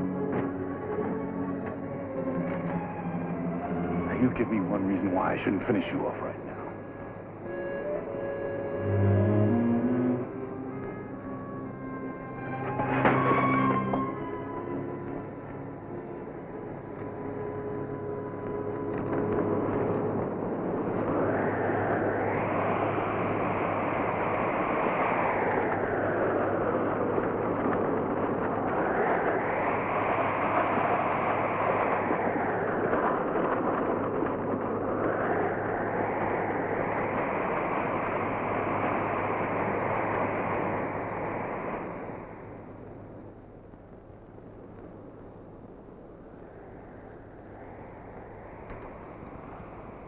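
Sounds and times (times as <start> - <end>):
galloping hooves and wagon wheels: 10.3 - 22.0, 22.8 - 46.2.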